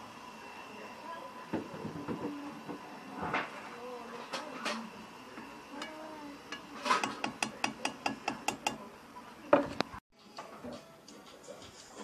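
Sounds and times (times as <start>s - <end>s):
metal spoon clicking on pan: 5.8s - 8.8s.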